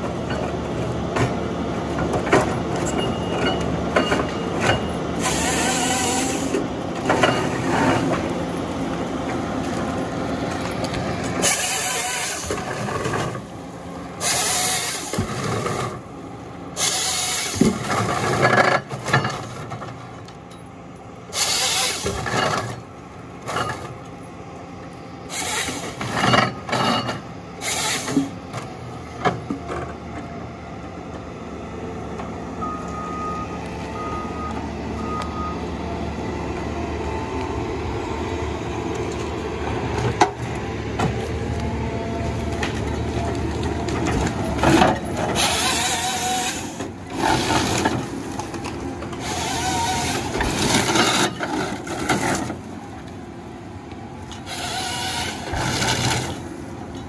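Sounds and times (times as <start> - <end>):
diesel engine running: 0.0 - 57.0
harvester head sawing logs: 5.1 - 8.4, 9.7 - 13.6, 14.2 - 16.1, 16.7 - 18.6, 21.3 - 22.9, 25.3 - 26.9, 27.6 - 28.4, 42.4 - 52.6, 54.3 - 56.6
short beeps: 32.6 - 35.6.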